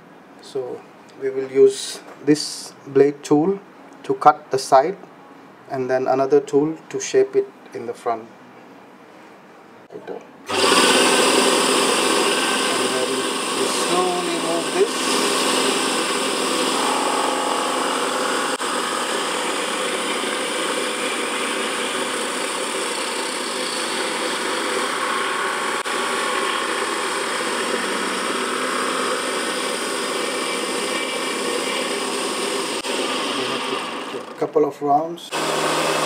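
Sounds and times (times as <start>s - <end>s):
lathe motor whine: 10.5s - 34.3s, 35.3s - 36.0s.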